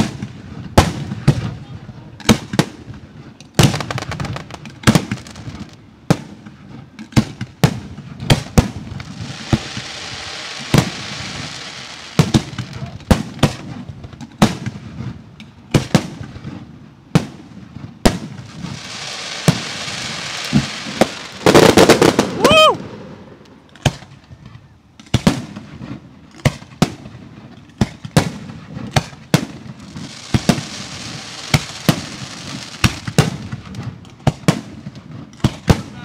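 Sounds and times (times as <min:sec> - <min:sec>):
firework crackling: 0:00.0 - 0:36.0.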